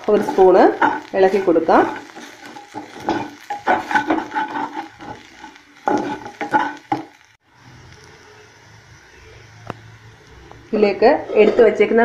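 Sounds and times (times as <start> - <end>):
light sizzle: 0.0 - 12.0
spatula scraping metal pan: 0.1 - 7.1, 11.2 - 11.9.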